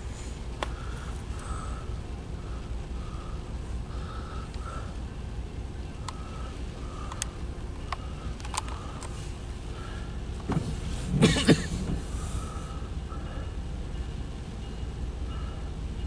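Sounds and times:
low rumble of car cabin: 0.0 - 13.3
sharp ticks: 7.0 - 9.2.

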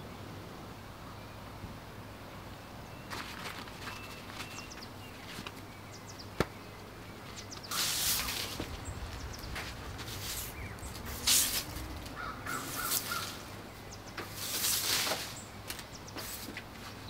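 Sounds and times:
bird calling: 2.8 - 17.0
broom sweeping leaves on wooden deck: 3.0 - 5.6, 7.2 - 17.0.

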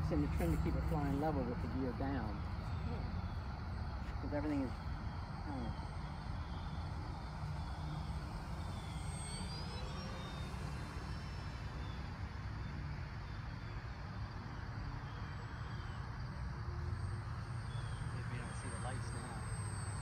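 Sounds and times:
model plane propeller drone: 0.0 - 20.0.

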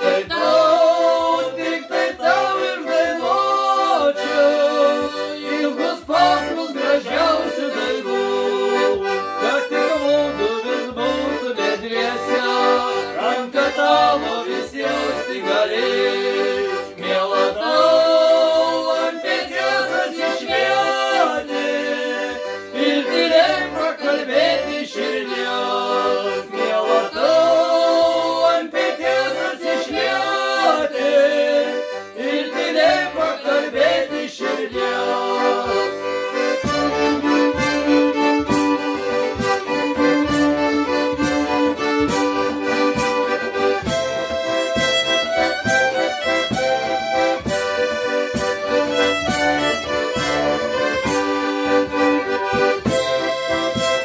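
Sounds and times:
men singing folk song: 0.0 - 40.4
accordion: 0.0 - 54.0
fiddle playing tune: 0.0 - 54.0.

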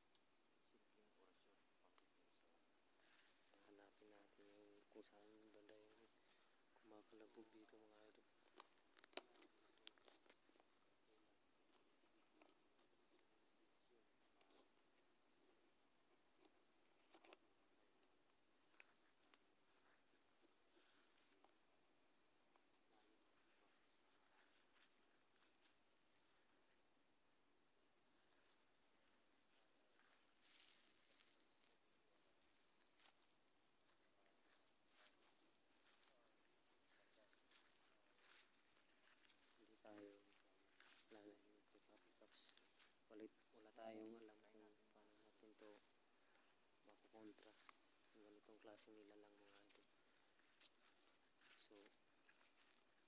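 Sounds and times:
crickets and insects chirring: 0.0 - 53.0.

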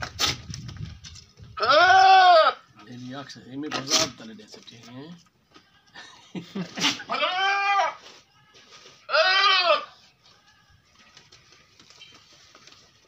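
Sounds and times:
goat bleating: 1.6 - 2.6, 6.7 - 8.0, 9.0 - 10.0.

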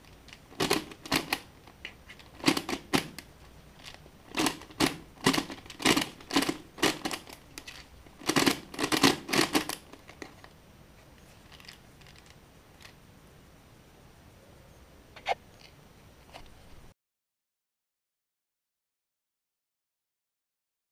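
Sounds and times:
twisty puzzle clacking and clicking: 0.0 - 10.5, 11.4 - 13.0.

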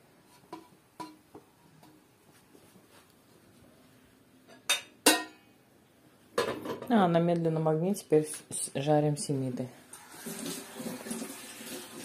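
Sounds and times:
crockery clinking: 4.5 - 5.4.

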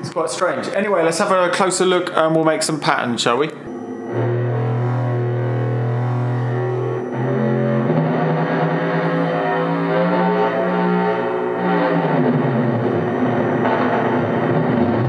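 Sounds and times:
synthesizer sustained note: 3.7 - 15.0.

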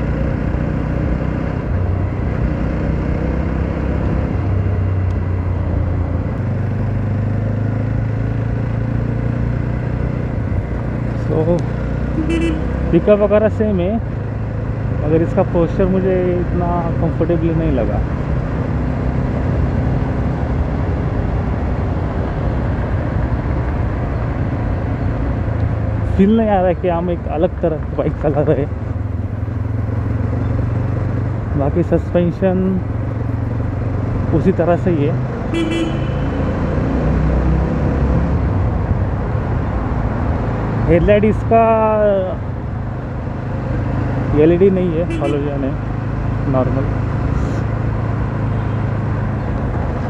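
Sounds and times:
motorcycle engine running: 0.0 - 21.4, 22.1 - 36.6
wind and road noise: 0.0 - 50.0.

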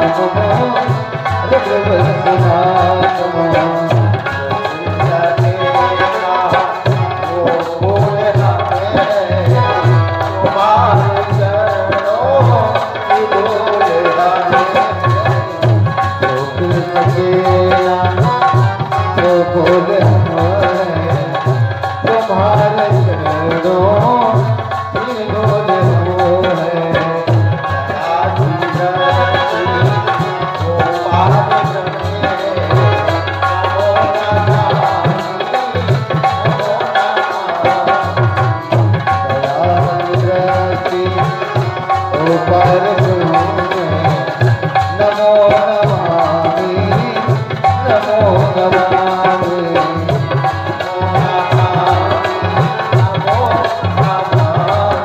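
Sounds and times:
hand drums rhythm: 0.0 - 55.0.

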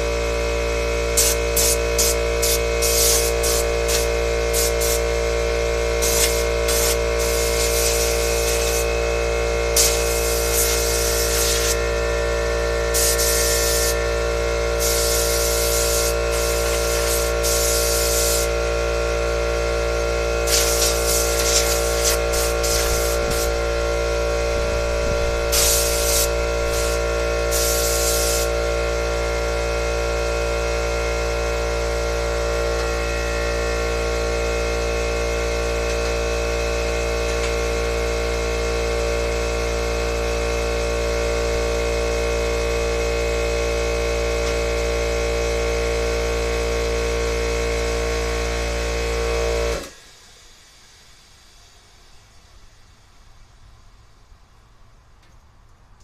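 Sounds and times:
air compressor running: 0.0 - 52.4
short bursts of hiss: 1.2 - 5.0, 6.0 - 8.9, 9.8 - 11.8, 13.0 - 14.0, 14.8 - 18.5, 20.4 - 23.6, 25.5 - 28.6.

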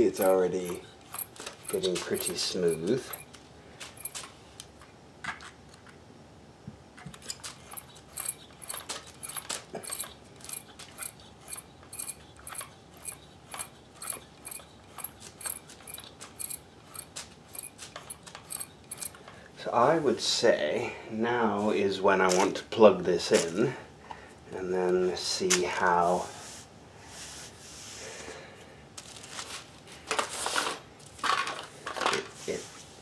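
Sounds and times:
sewing machine mechanism clicking: 0.1 - 4.3, 7.1 - 19.2.

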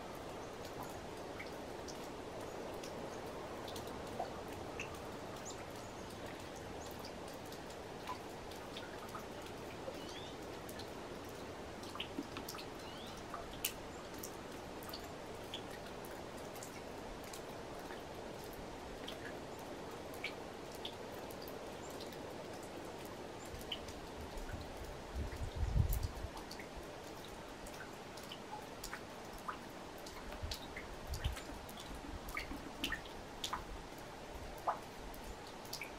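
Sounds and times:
steady low hiss: 0.0 - 35.9
faint ticks: 20.1 - 35.9.

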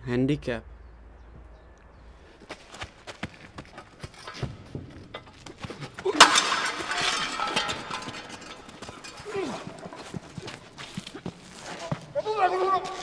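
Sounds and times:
glass shattering: 5.1 - 10.4
loud crash: 6.0 - 9.8.

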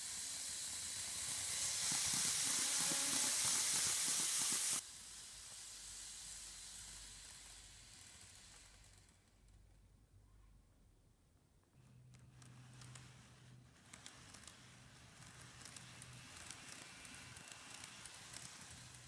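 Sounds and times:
model train running on rails: 0.0 - 9.4, 12.4 - 19.0.

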